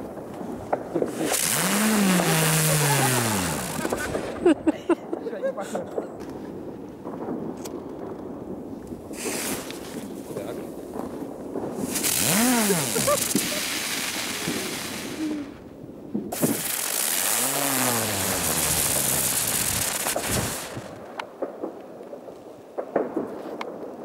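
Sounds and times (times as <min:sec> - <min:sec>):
firecrackers hissing: 0:00.0 - 0:05.0, 0:09.0 - 0:21.2
sharp crackles: 0:00.0 - 0:24.0.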